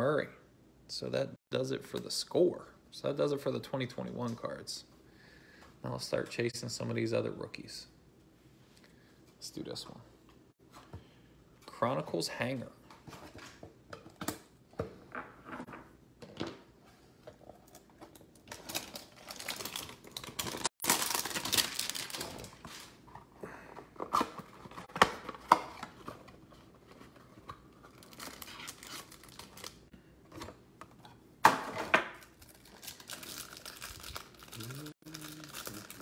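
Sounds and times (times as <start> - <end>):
loud packaging crackle: 18.4 - 23.0, 27.9 - 29.9, 32.2 - 36.0
packaging tearing and crinkling: 18.5 - 22.9, 27.9 - 29.8, 32.2 - 36.0.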